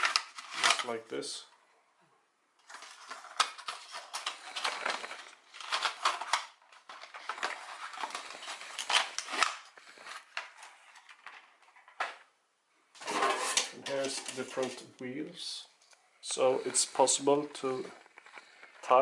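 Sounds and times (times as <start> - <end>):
plastic tray and box rustling: 2.6 - 12.3, 13.0 - 14.9.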